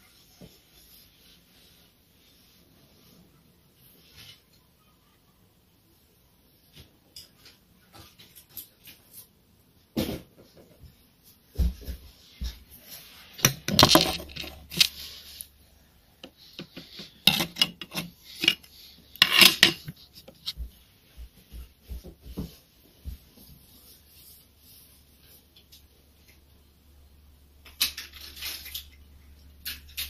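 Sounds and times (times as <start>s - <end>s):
hard objects clattering: 13.4s - 15.2s, 16.2s - 20.6s.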